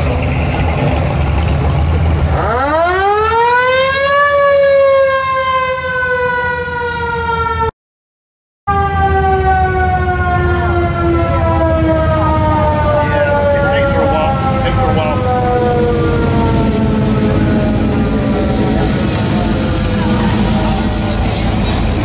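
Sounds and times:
siren winding up and down: 2.3 - 7.7
passing car engines: 10.7 - 22.0.

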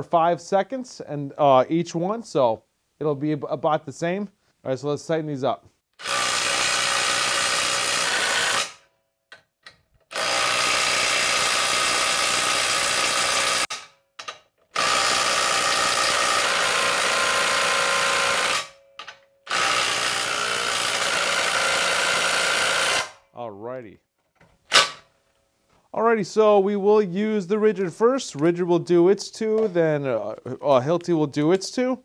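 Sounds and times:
impact wrench hammering nuts: 6.0 - 23.2.

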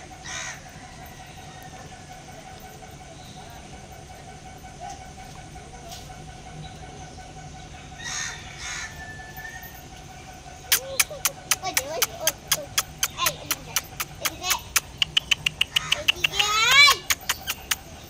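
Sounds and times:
harsh caw-like bird calls: 0.2 - 0.8, 7.8 - 9.2.

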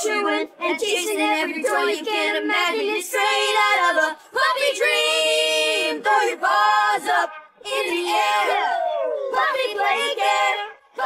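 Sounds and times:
people singing: 0.0 - 11.0.

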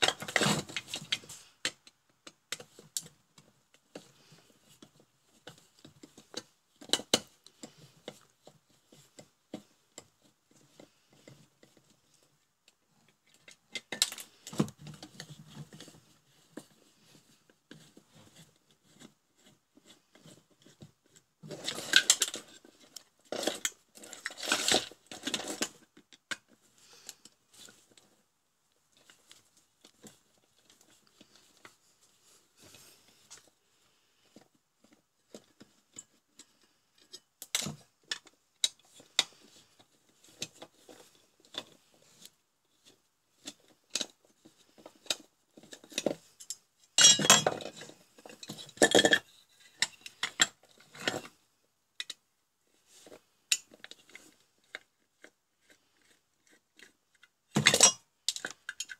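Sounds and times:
metal parts clinking and knocking: 46.4 - 51.1.

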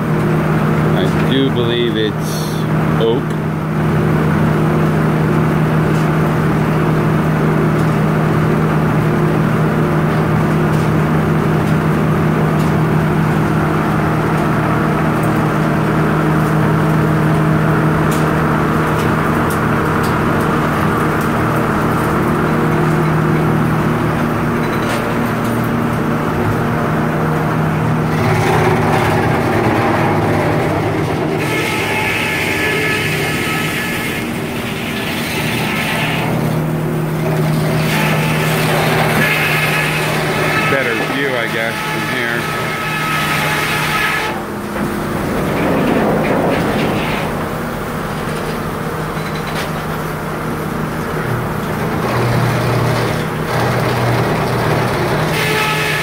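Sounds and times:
sawmill machinery humming: 0.0 - 56.0.

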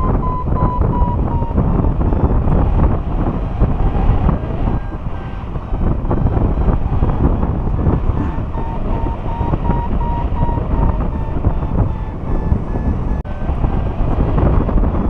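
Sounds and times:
variometer high beeps: 0.0 - 2.5, 8.0 - 13.2
wind buffeting microphone: 0.0 - 15.0.

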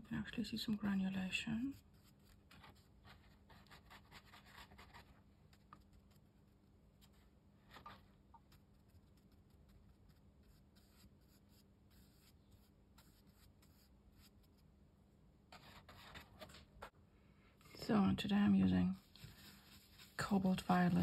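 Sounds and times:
brush scratching on paper: 1.7 - 6.3, 7.0 - 14.6, 15.5 - 16.9, 18.8 - 21.0.

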